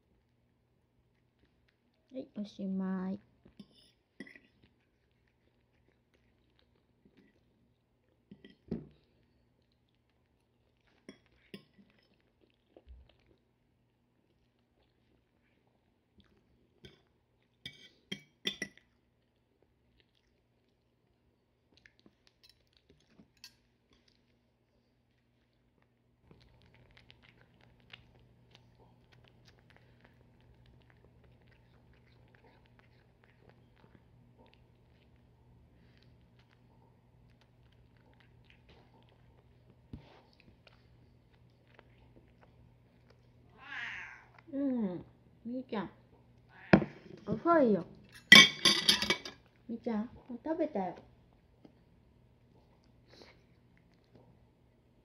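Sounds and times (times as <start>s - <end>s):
cat chewing and licking: 0.0s - 48.4s, 49.3s - 55.0s
low steady hum: 0.0s - 55.0s
knock on hard surface: 46.8s - 47.0s.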